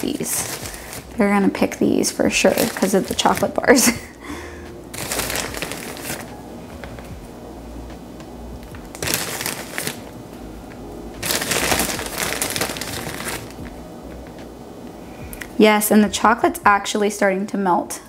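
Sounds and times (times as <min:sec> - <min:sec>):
plastic bag crinkling: 0:00.0 - 0:04.2, 0:04.9 - 0:07.1, 0:08.8 - 0:10.2, 0:11.2 - 0:13.7.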